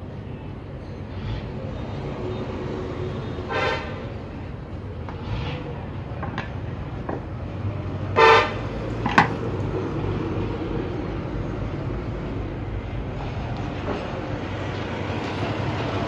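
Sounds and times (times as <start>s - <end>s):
low traffic rumble: 0.0s - 16.0s
vehicle horn toot: 3.4s - 4.0s, 8.2s - 8.6s.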